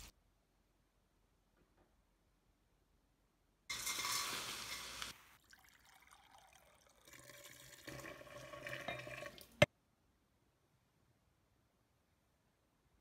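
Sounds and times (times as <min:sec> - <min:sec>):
water pouring into glass jar: 0:03.7 - 0:09.7.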